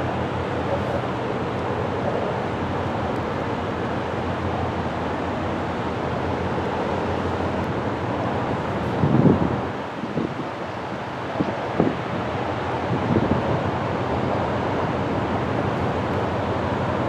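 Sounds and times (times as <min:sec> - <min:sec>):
wind noise on microphone: 0:08.6 - 0:14.0.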